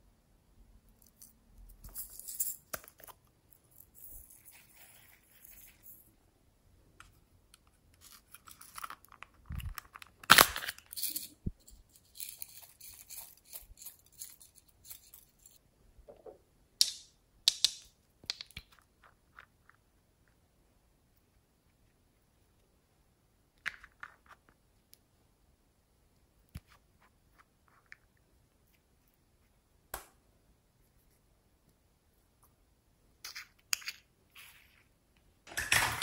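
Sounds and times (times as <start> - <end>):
plastic toys rubbing and clicking: 7.6 - 15.6.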